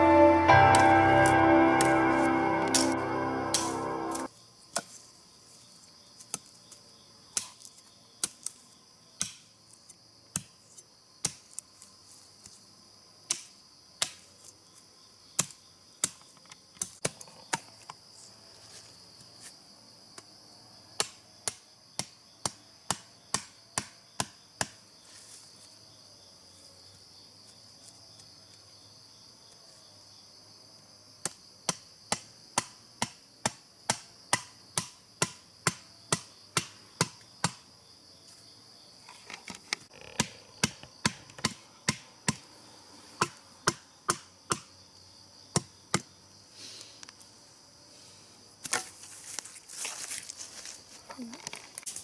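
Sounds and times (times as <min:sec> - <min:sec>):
insect chirring: 0:36.0 - 0:47.2.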